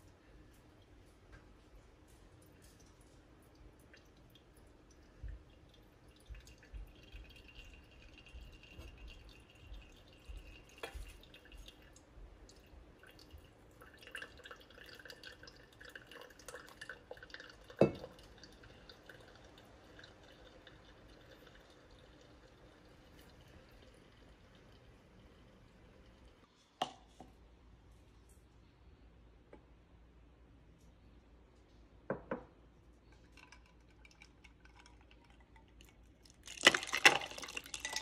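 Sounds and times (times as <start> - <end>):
hot water pouring onto coffee grounds: 2.0 - 26.5, 33.2 - 38.0
coffee dripping into glass: 3.8 - 27.0, 33.1 - 38.0.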